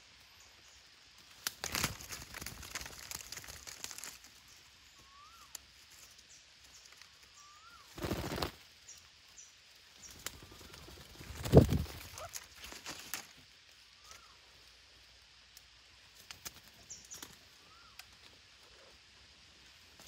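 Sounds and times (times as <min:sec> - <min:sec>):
branches rustling: 0:00.0 - 0:18.9
parakeet wings flapping: 0:01.4 - 0:04.3, 0:07.9 - 0:08.6, 0:10.1 - 0:13.2.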